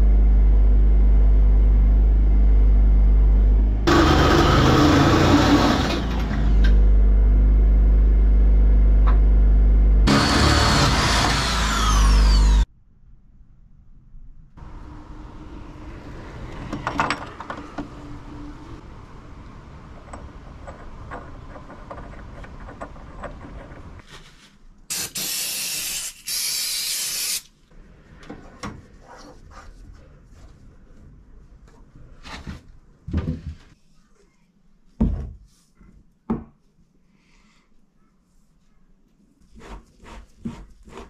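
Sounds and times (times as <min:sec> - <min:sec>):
hissing spray: 0:24.9 - 0:27.4.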